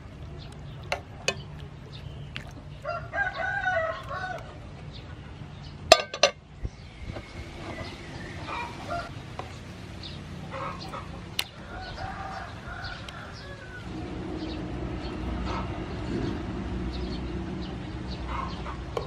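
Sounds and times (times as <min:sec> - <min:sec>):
low steady bubbling: 0:00.0 - 0:10.4
metal tongs clacking: 0:05.9 - 0:06.4
chickens clucking: 0:10.4 - 0:14.6, 0:18.2 - 0:19.0.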